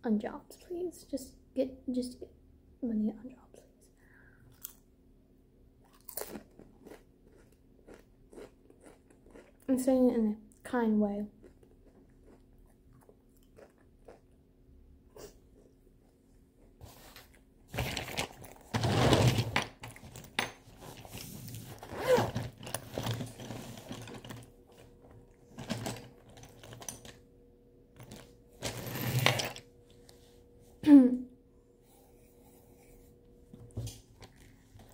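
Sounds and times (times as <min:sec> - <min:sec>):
rummaging through pencil case: 0:17.7 - 0:24.9, 0:25.5 - 0:27.2, 0:28.0 - 0:29.6.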